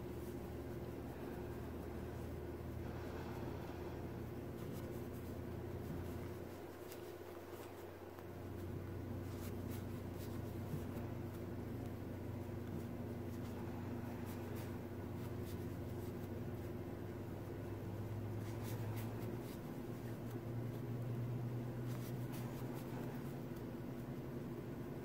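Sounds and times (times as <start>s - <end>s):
steady low hum: 0.0s - 25.0s
crochet hook scratching yarn: 4.5s - 11.9s, 12.5s - 24.1s.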